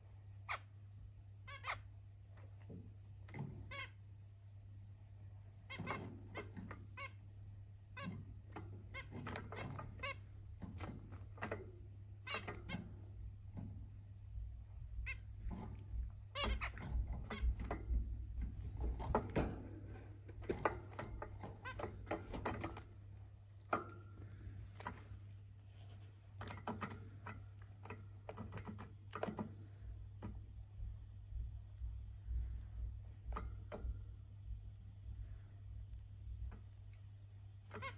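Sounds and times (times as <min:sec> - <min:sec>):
steady low hum: 0:00.0 - 0:37.9
finches chirping: 0:01.4 - 0:02.7, 0:03.6 - 0:04.0, 0:05.6 - 0:13.5, 0:14.8 - 0:23.2.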